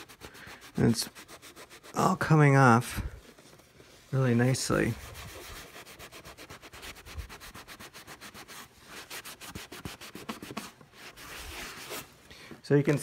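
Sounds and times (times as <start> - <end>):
rag rubbing cardboard: 0.0 - 2.4, 4.6 - 12.1.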